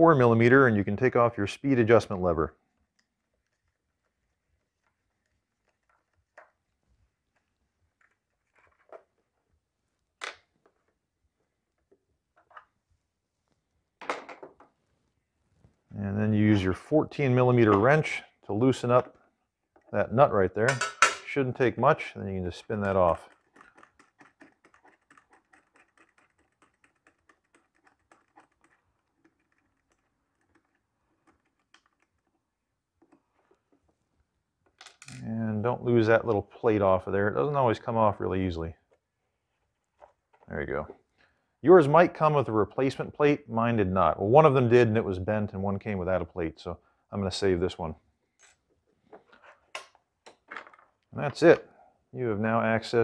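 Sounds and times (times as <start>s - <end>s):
hex key clicks and scrapes: 23.3s - 32.4s.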